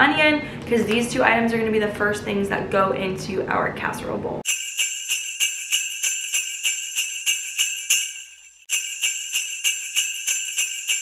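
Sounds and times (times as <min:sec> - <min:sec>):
jingle bells shaken: 0:04.5 - 0:11.0.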